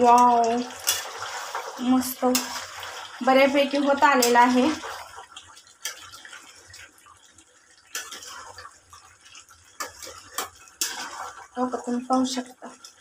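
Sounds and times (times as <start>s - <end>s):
spatula scraping pan: 0.0s - 5.2s, 7.9s - 11.8s
chicken cooking wet sizzle: 0.0s - 13.0s.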